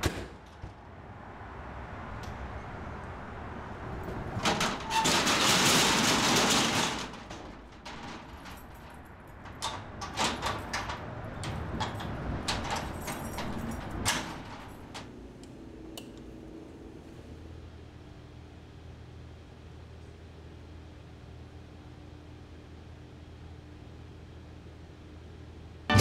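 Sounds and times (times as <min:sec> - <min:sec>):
metal security shutter rattling: 0:04.4 - 0:15.2.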